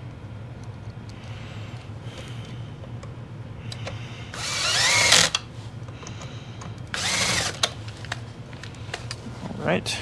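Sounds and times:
cordless drill driving screws: 0:04.4 - 0:05.4, 0:06.9 - 0:07.7.

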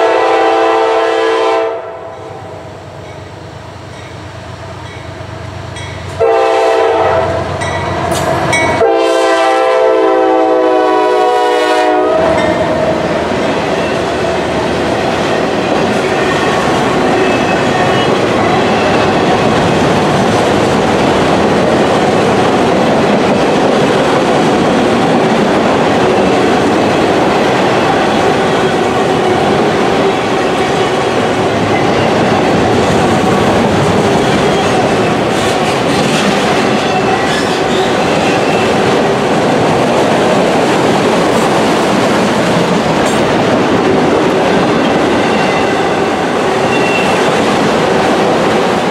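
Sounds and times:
freight train rolling past: 0:00.0 - 0:48.9
steel wheels clattering on rail: 0:07.5 - 0:08.9, 0:12.3 - 0:48.9.

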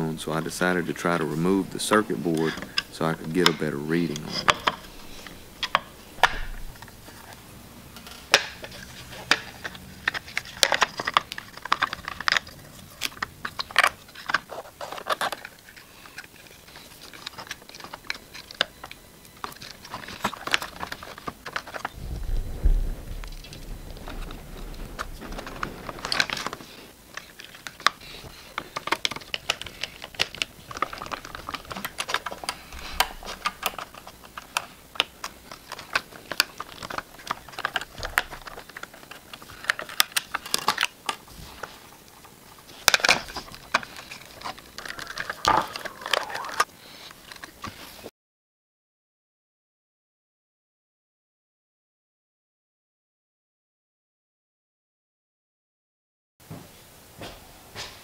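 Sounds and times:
low bump: 0:22.0 - 0:26.3.

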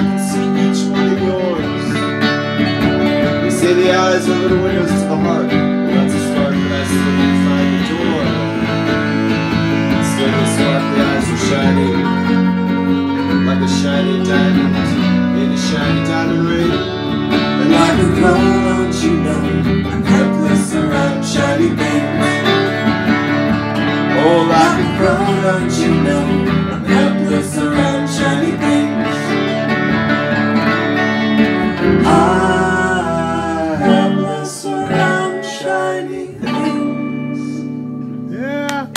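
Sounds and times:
clarinet: 0:00.0 - 0:38.9
electric guitar: 0:00.0 - 0:38.9
live band music: 0:00.0 - 0:38.9
plucked string instrument: 0:00.0 - 0:38.9
voices singing: 0:03.3 - 0:12.4, 0:13.4 - 0:22.9, 0:24.0 - 0:29.6, 0:31.6 - 0:37.7.

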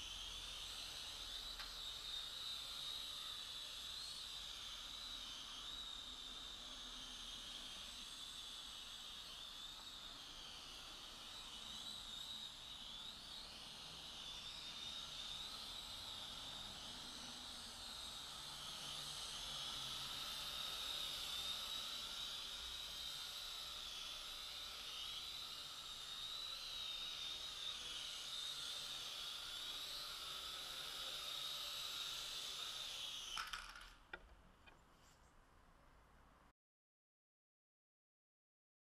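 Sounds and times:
quadcopter propellers whining: 0:00.0 - 0:34.2.

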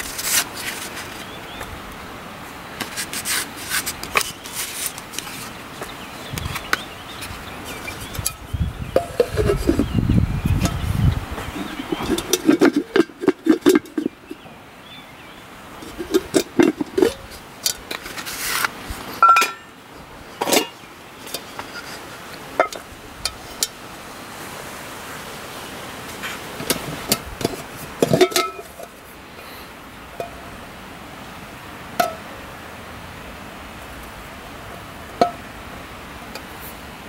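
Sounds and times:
wire handle knocking metal pot: 0:09.0 - 0:09.9, 0:11.9 - 0:14.2, 0:15.8 - 0:17.3, 0:19.2 - 0:19.7, 0:26.6 - 0:28.9
wooden lid set down: 0:11.6 - 0:14.4.

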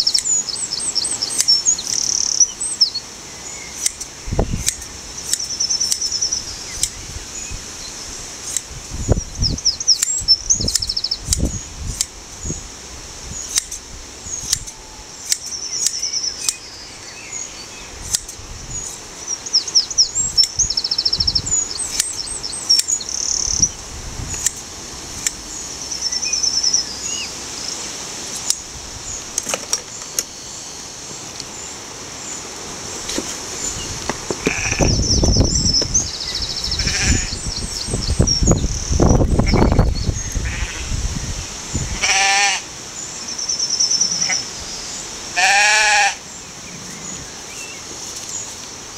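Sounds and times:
shears clicking: 0:00.0 - 0:00.3, 0:03.7 - 0:07.0, 0:08.4 - 0:08.7, 0:09.9 - 0:12.2, 0:13.4 - 0:16.7, 0:18.0 - 0:19.7, 0:21.6 - 0:23.4, 0:24.2 - 0:25.5, 0:27.7 - 0:30.4, 0:32.3 - 0:36.0
small birds chirping: 0:00.0 - 0:42.2, 0:42.9 - 0:48.8.

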